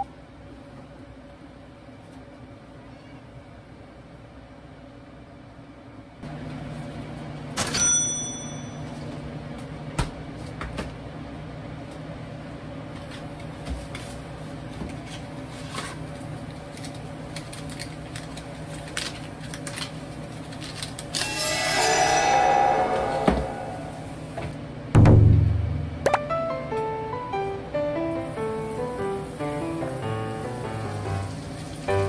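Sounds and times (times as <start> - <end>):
loud ringing clink: 7.7 - 8.9, 21.2 - 24.3
low machine hum: 21.2 - 32.0.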